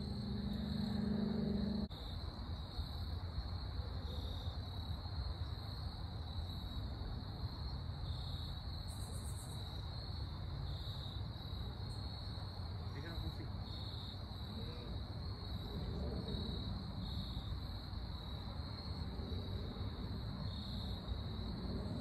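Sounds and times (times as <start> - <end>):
low background rumble: 0.0 - 1.9
musical drone: 0.0 - 1.9
insects chirping: 0.0 - 22.0.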